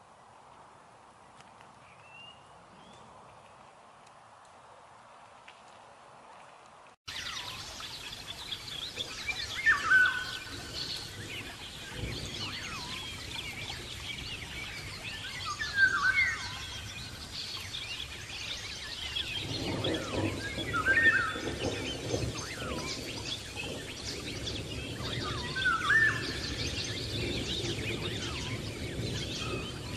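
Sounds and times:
birds chirping: 0:07.1 - 0:29.9.

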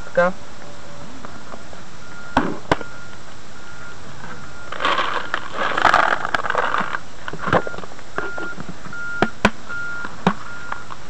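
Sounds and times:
pellets pouring into a bucket: 0:04.7 - 0:07.0.

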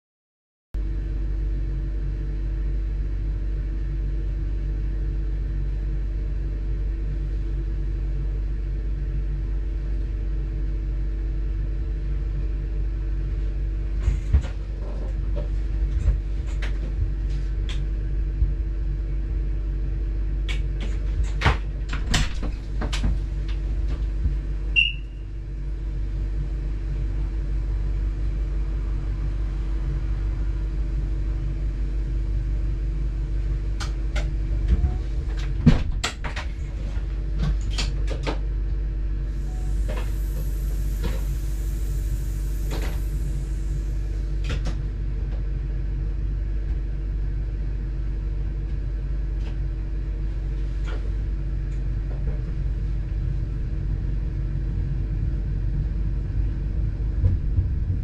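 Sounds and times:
train rumble and hum: 0:00.8 - 0:58.0
brief high beep: 0:24.8 - 0:25.2.

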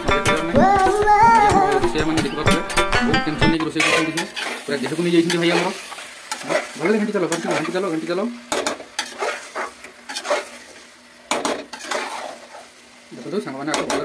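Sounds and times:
curry sizzling: 0:00.0 - 0:14.0
metal ladle scraping pot: 0:09.0 - 0:10.6, 0:11.4 - 0:12.4.

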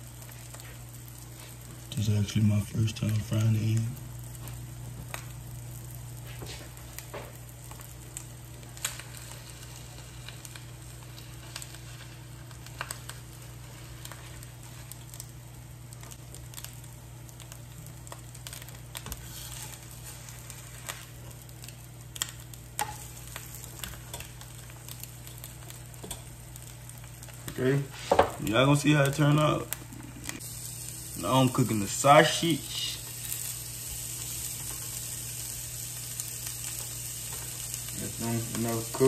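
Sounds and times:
eggs sizzling in a skillet: 0:00.0 - 0:39.0
spatula scraping a pan: 0:19.2 - 0:20.3.

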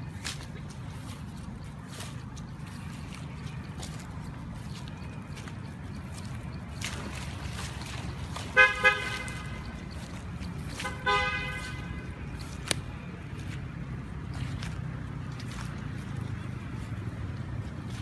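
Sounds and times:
vehicle horn honking: 0:08.5 - 0:09.6, 0:10.8 - 0:12.2.

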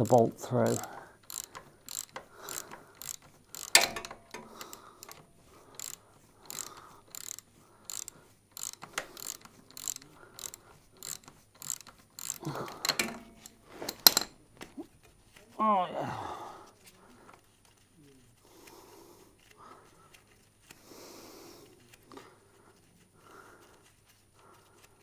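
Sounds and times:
socket ratchet clicking: 0:00.0 - 0:14.3.

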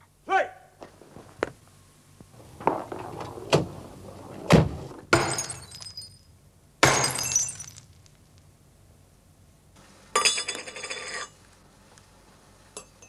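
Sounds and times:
knocks and thuds: 0:02.4 - 0:05.6
glass smashing: 0:05.1 - 0:08.1.

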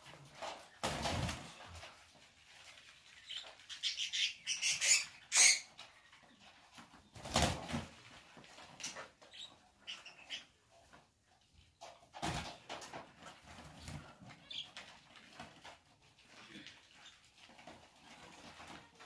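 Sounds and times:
budgerigars flapping wings in cage: 0:00.3 - 0:02.0, 0:06.8 - 0:08.2.

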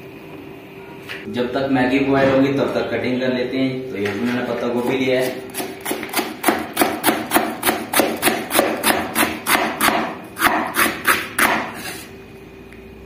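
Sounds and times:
knife chopping cabbage on cutting board: 0:05.2 - 0:11.9.

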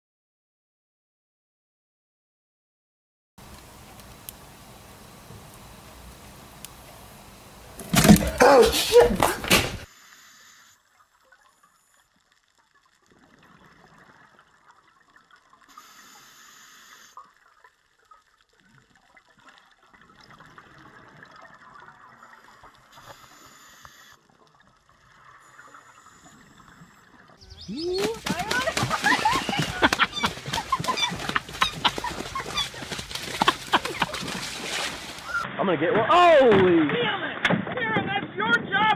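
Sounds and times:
underwater bubbling and gurgling: 0:10.8 - 0:27.8.

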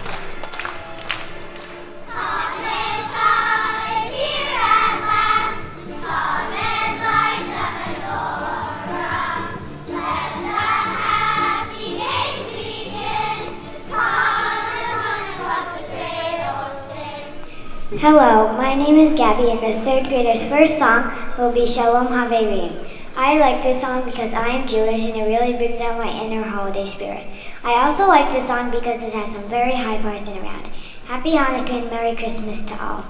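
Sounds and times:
musical accompaniment: 0:00.0 - 0:20.6
children singing in chorus: 0:02.1 - 0:17.5.

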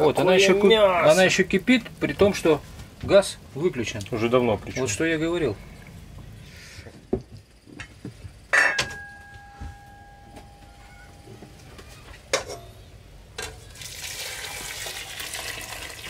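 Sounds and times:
metal pots knocking: 0:08.5 - 0:11.6
broth pouring and splashing: 0:13.6 - 0:16.0.

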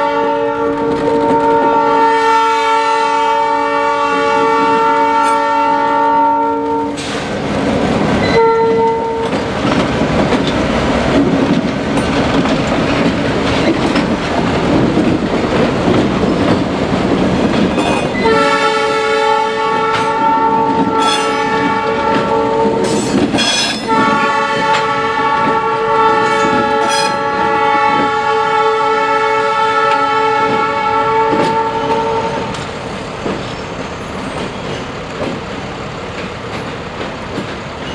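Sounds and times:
locomotive air horn blasts: 0:00.0 - 0:07.1, 0:08.2 - 0:09.4, 0:17.8 - 0:32.5
steel wheels clicking over rail joints: 0:09.2 - 0:18.2, 0:20.7 - 0:24.1, 0:32.5 - 0:37.9.

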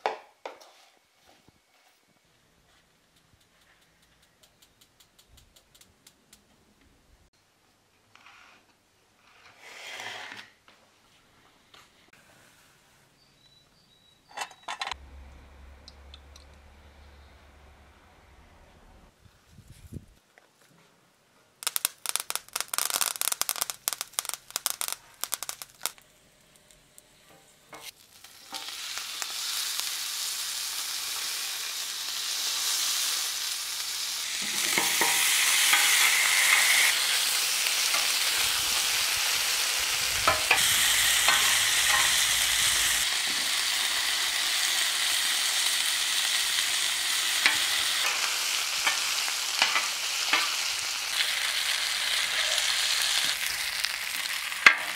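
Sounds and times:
rapid dry clicking: 0:03.1 - 0:06.5, 0:21.6 - 0:26.0
meat sizzling on griddle: 0:27.8 - 0:54.9.

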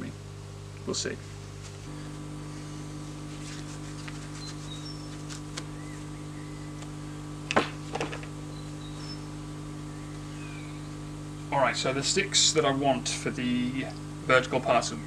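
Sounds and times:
steady low hum: 0:00.0 - 0:15.0
faint bird chirps: 0:04.3 - 0:06.8, 0:08.4 - 0:11.1.

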